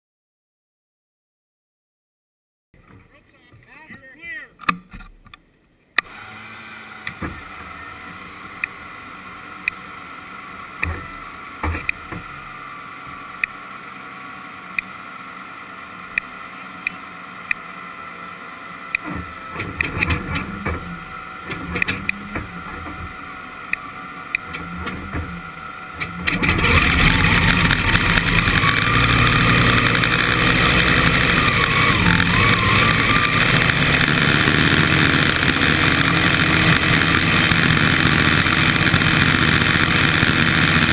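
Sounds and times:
steady hum: 5.3s - 40.9s
boat engine running loud: 6.1s - 40.9s
sharp clicks: 18.9s - 20.7s, 21.5s - 22.4s.

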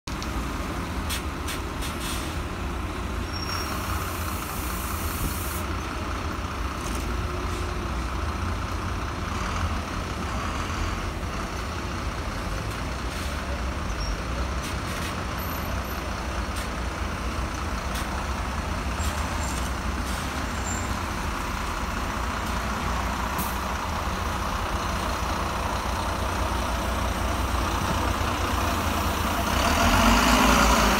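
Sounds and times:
bus diesel engine rumbling: 0.1s - 30.9s
air brake hiss: 1.1s - 2.4s, 3.4s - 5.7s.

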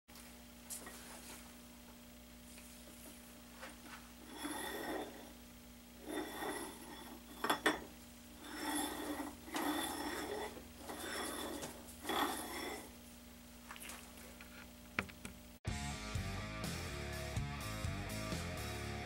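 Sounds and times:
metal bar scraping and clinking: 4.2s - 5.4s, 6.0s - 13.0s.

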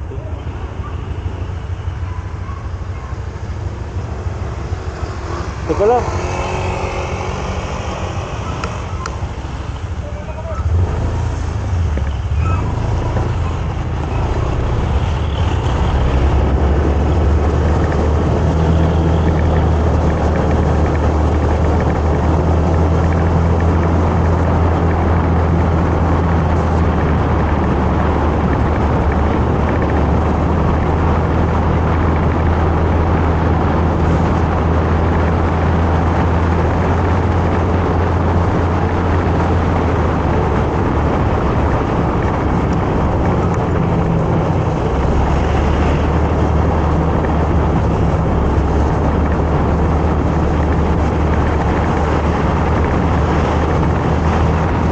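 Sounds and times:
motorcycle engine cruising: 0.0s - 54.9s
wind and road noise: 0.0s - 54.9s.

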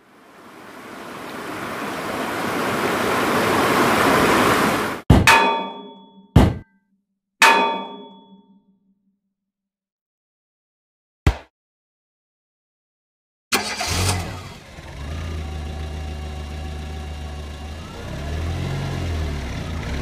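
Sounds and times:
metallic clangs: 5.1s - 6.6s, 7.4s - 8.5s.

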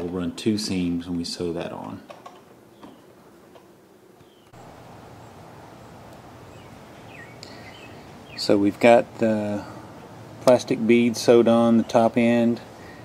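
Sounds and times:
outdoor background hiss: 0.0s - 13.0s
faint bird chirps: 4.2s - 4.6s, 5.2s - 8.6s.

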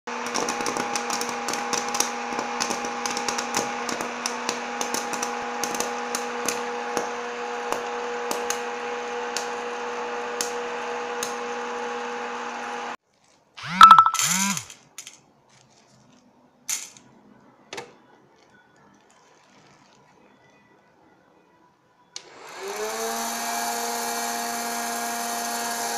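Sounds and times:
popcorn kernels popping: 0.1s - 8.6s
popcorn machine humming: 0.1s - 13.0s, 22.5s - 25.9s.

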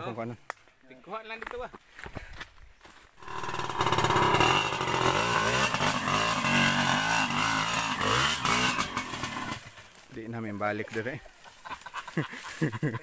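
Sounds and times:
motorcycle engine revving: 3.2s - 9.9s.

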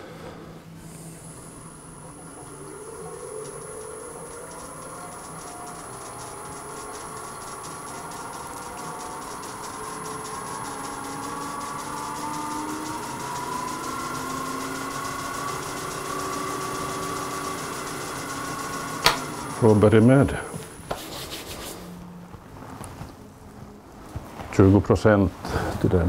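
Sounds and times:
wood lathe motor whine: 0.0s - 21.0s.

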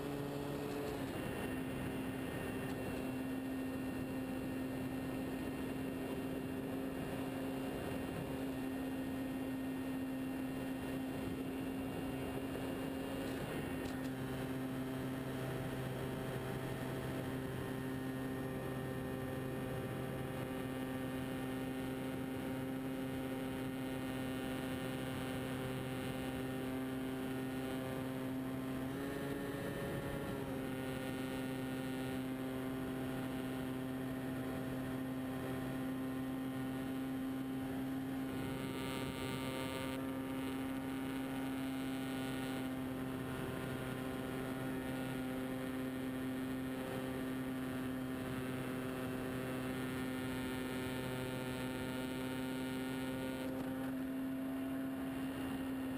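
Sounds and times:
model plane motor and propeller droning: 0.0s - 55.9s.

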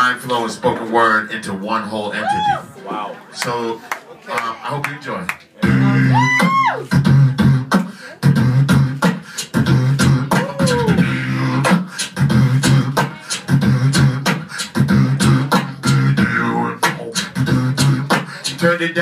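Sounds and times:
beatboxing into microphones: 4.4s - 19.0s
falling vocal glide: 5.6s - 19.0s.

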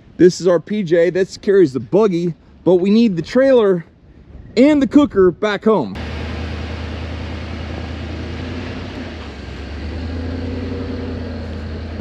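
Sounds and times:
vehicle engine droning: 6.0s - 12.0s.

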